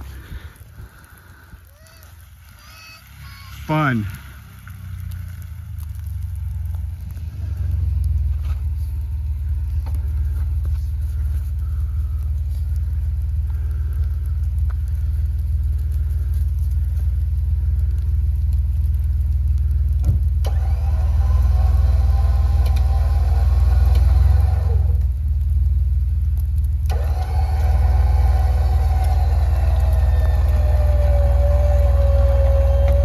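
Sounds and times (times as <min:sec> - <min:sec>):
engine low rumble: 0:00.0 - 0:33.0.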